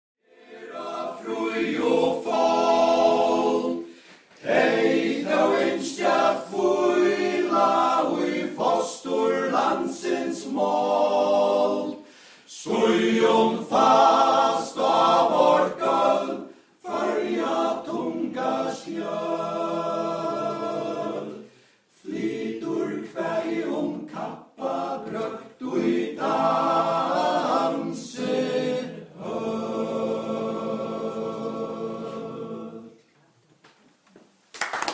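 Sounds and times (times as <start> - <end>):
men's choir singing a cappella: 0.3 - 33.0.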